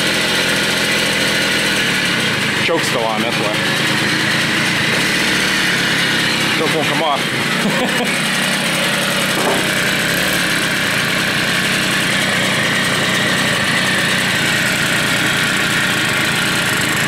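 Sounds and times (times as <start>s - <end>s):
two-stroke moped engine running: 0.0s - 17.0s.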